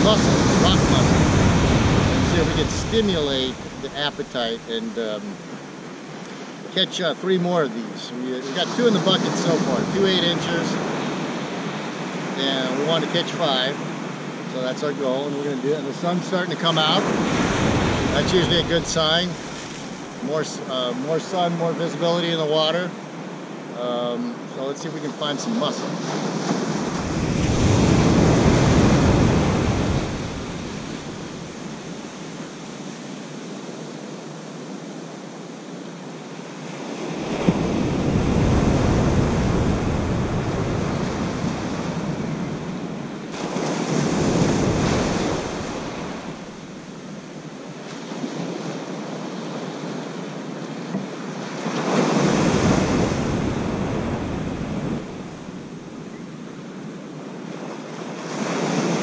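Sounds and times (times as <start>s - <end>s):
surf washing onto beach: 0.0s - 56.0s, 57.4s - 59.0s
wind rumble on microphone: 26.2s - 32.1s, 37.2s - 46.8s, 52.2s - 56.2s.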